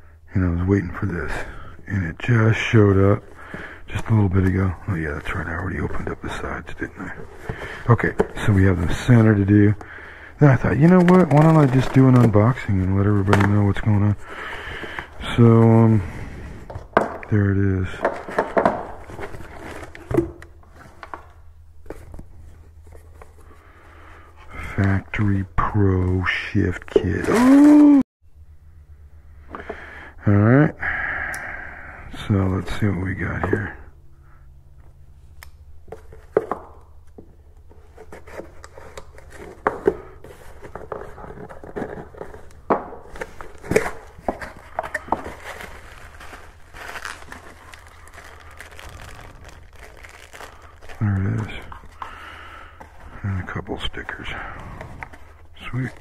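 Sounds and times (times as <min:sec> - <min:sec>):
cardboard and paper rustling: 0:02.6 - 0:16.0, 0:16.6 - 0:23.6, 0:24.8 - 0:27.9, 0:35.9 - 0:56.0
steady low hum: 0:28.2 - 0:56.0
cardboard box rustling and scraping: 0:37.7 - 0:51.0.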